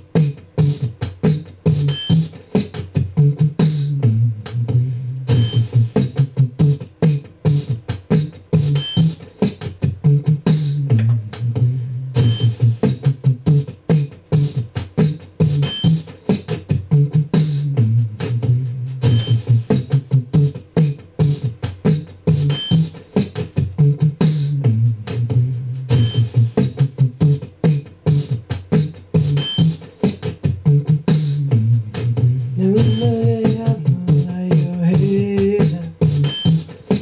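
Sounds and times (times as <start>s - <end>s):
beatboxing into a microphone: 0.0s - 37.0s
low pulsing bass hum: 10.8s - 12.8s.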